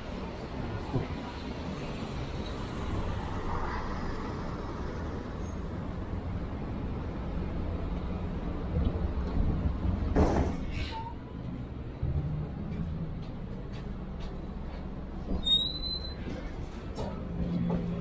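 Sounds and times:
traffic on wet road: 0:00.0 - 0:10.7.

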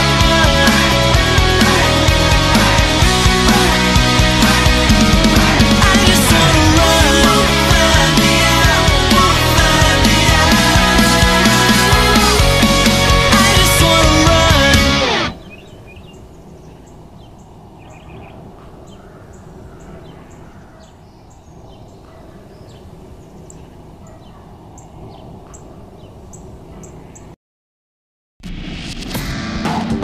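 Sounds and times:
high bird chirps: 0:15.3 - 0:27.3.

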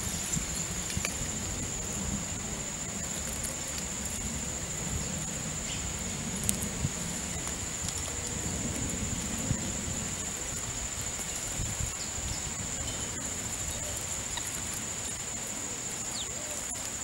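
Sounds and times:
insects trilling: 0:00.0 - 0:17.0
faint clicks: 0:06.4 - 0:06.7.

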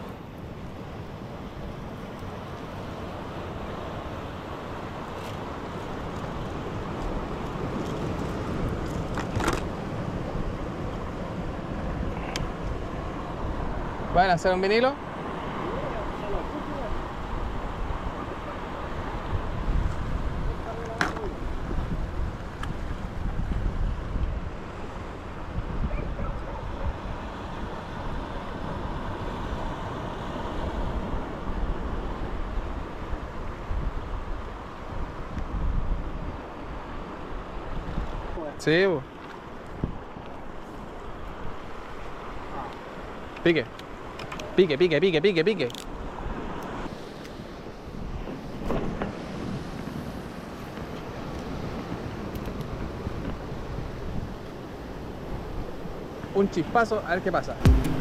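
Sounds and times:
sea surf: 0:00.0 - 0:58.0
wind: 0:00.0 - 0:58.0
wind buffeting microphone: 0:15.6 - 0:38.4.

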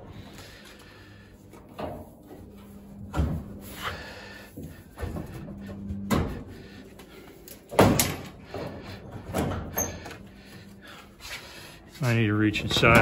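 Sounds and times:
metal panels knocking and clunking: 0:07.7 - 0:10.1.

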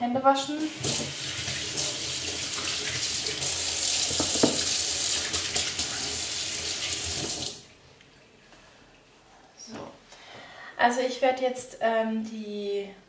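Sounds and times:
hands washing under water: 0:00.8 - 0:07.6
tap running into metal sink: 0:04.0 - 0:06.0.

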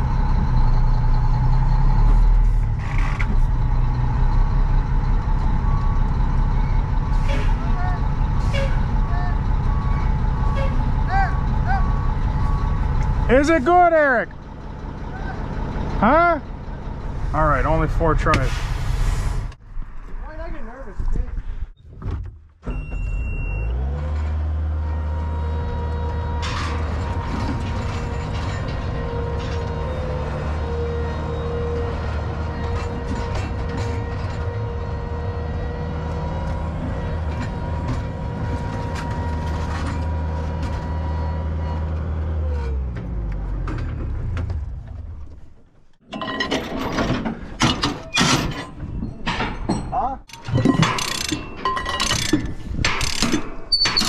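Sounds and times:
clinks and knocks: 0:26.3 - 0:30.2, 0:46.0 - 0:54.0.

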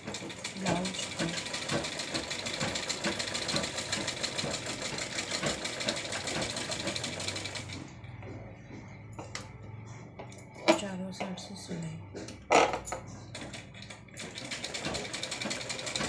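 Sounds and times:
sewing machine clatter: 0:00.0 - 0:07.9, 0:13.3 - 0:16.0.

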